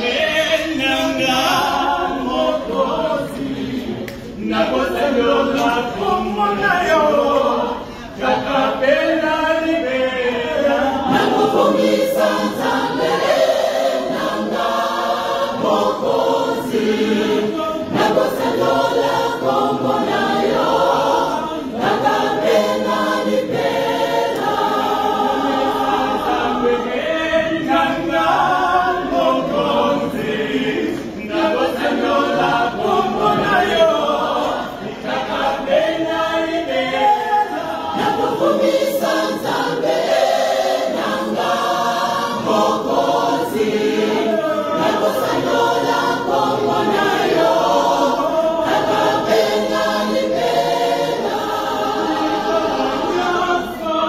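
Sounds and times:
mixed choir singing: 0.0 - 54.0.

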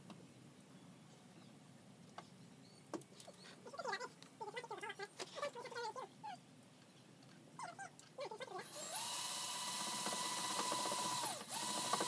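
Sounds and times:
power drill motor whining: 8.6 - 12.0.

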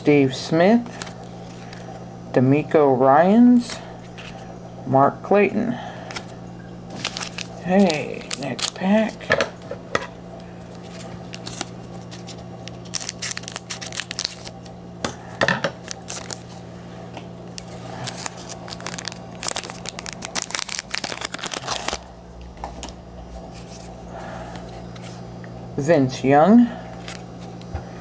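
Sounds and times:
low hum: 0.0 - 28.0
wrapper tearing and crinkling: 6.9 - 9.2, 10.8 - 14.7, 15.8 - 16.6, 17.6 - 22.1.

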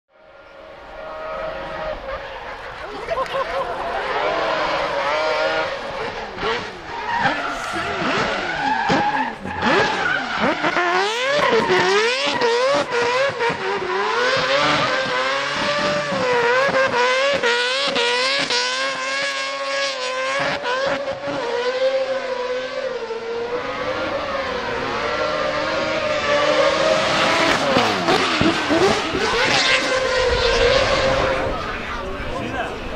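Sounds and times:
rotary engine revving: 0.2 - 32.9
tyres skidding: 0.3 - 32.9.

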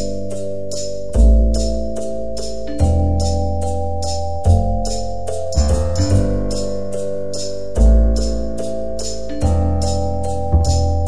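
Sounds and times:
keyboard chords: 0.0 - 11.0
ticking beat: 0.0 - 11.0
deep bass note: 4.5 - 7.2.

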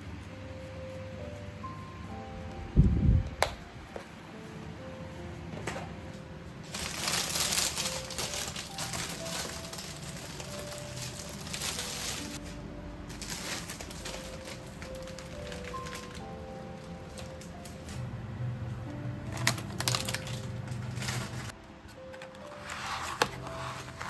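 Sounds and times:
soft background music: 0.0 - 24.0
plastic bags crinkling: 6.7 - 17.9, 19.2 - 21.5.

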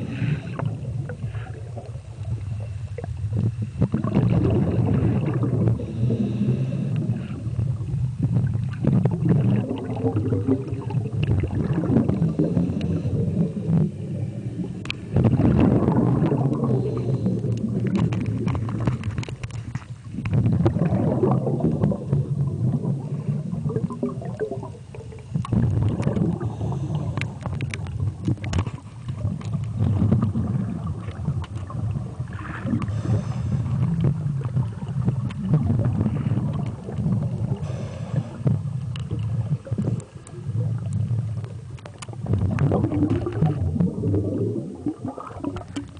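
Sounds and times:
underwater rumble: 0.0 - 45.9.

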